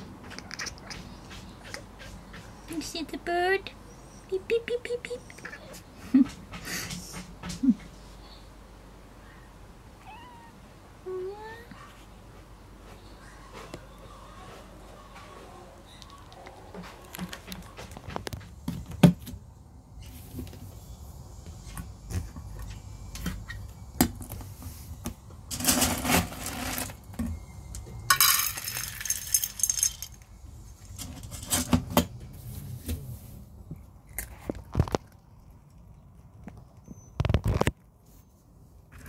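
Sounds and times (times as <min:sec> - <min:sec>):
metal bowl rattling: 0:28.1 - 0:30.2.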